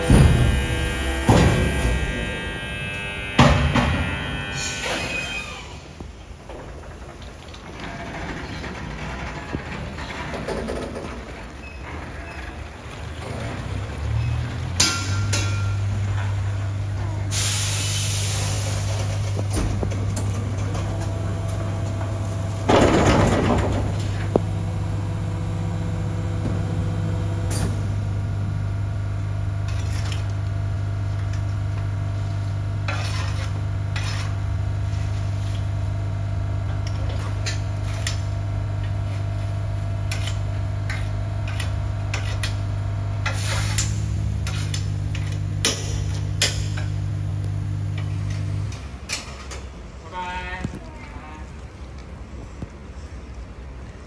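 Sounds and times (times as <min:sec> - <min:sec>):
garbage truck humming: 0:00.0 - 0:50.0
rush of refuse sliding: 0:04.6 - 0:24.3, 0:43.2 - 0:44.9
clatter of rubbish and metal: 0:06.4 - 0:17.5, 0:18.1 - 0:24.8.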